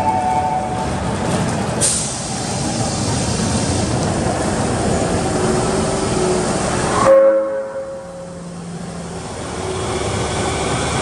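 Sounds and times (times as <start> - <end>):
train low rumble: 0.0 - 11.0
sharp hiss of released air: 1.8 - 3.9.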